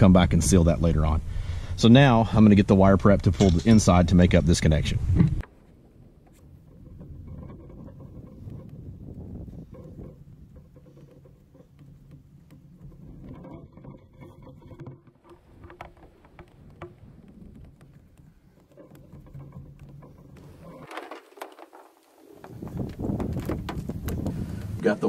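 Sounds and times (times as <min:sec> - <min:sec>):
wire rustling and scraping: 0:03.2 - 0:24.8.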